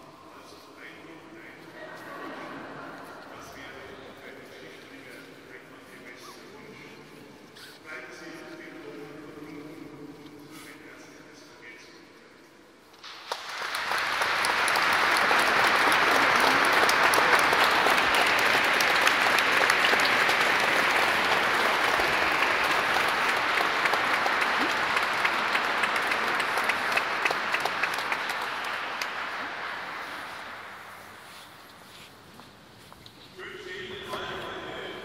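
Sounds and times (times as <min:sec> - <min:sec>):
congregation applauding: 0:13.0 - 0:31.6.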